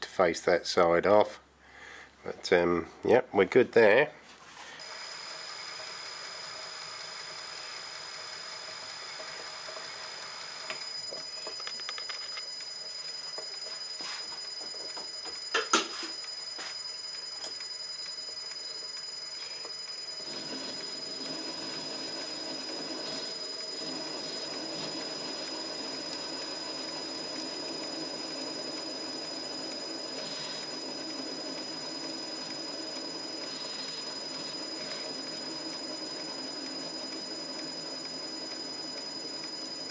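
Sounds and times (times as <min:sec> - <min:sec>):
metal lathe whining: 0:04.8 - 0:39.9.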